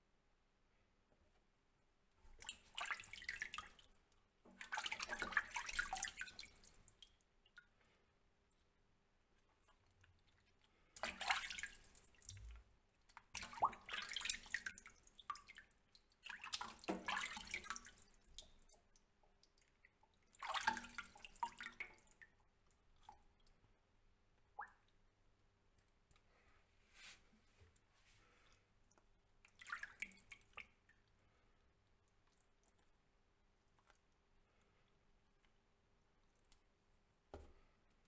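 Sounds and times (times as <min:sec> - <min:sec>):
water dripping: 0:02.2 - 0:26.4, 0:27.7 - 0:38.0
water splashing into a steel sink: 0:04.5 - 0:07.1, 0:11.0 - 0:15.6, 0:16.2 - 0:18.7, 0:20.3 - 0:22.3.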